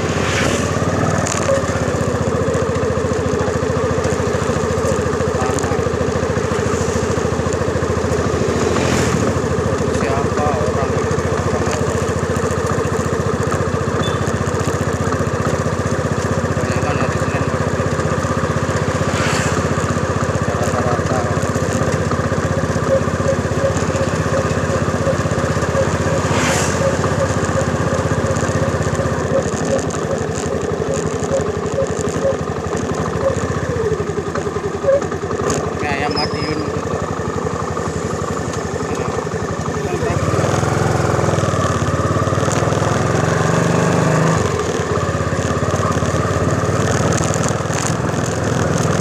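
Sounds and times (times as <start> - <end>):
brief swishes of noise: 0.0 - 0.8
motorcycle engine running: 0.0 - 49.0.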